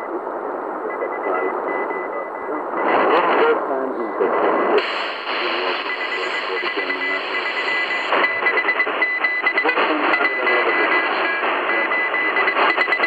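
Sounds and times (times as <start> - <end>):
faint radio broadcast: 0.0 - 13.0
radio static hiss and crackles: 0.0 - 13.0
morse code tone: 5.4 - 13.0.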